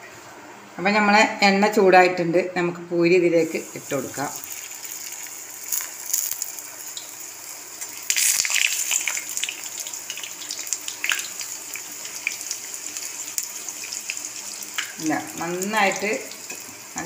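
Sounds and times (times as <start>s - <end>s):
dough sizzling in hot oil: 3.4s - 17.0s.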